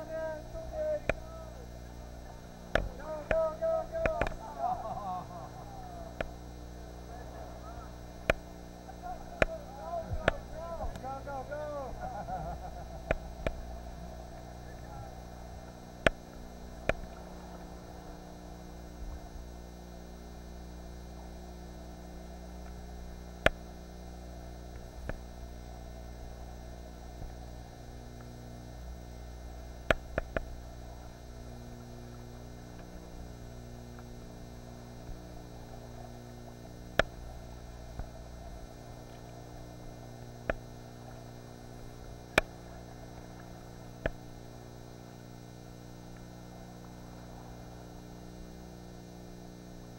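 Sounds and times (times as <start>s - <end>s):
steady electrical hum: 0.0s - 49.9s.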